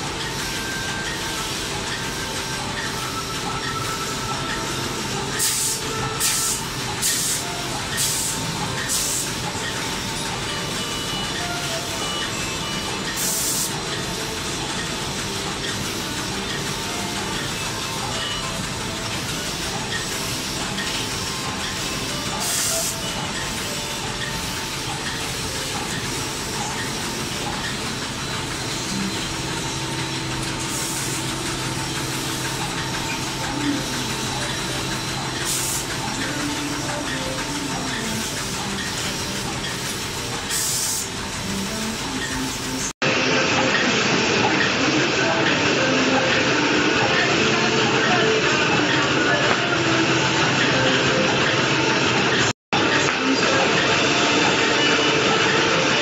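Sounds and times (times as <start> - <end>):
packing machine running: 0.0 - 56.0
compressed air hisses: 5.4 - 9.4, 13.2 - 13.8.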